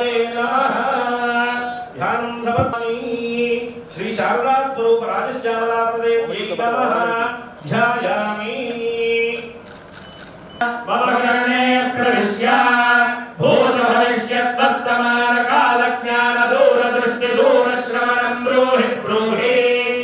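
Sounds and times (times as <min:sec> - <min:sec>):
men chanting together: 0:00.0 - 0:02.8, 0:10.7 - 0:20.0.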